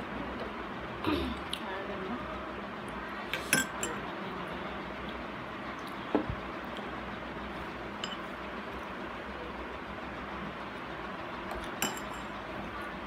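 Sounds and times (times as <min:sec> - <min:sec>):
spoon clinking on glass bowl: 0:11.8 - 0:12.3.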